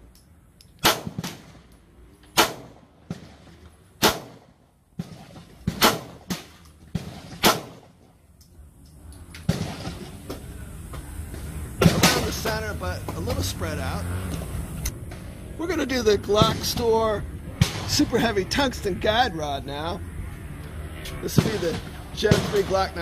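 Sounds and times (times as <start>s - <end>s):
pistol shots: 0.8s - 1.7s, 2.4s - 8.0s, 9.4s - 10.4s, 21.3s - 23.0s.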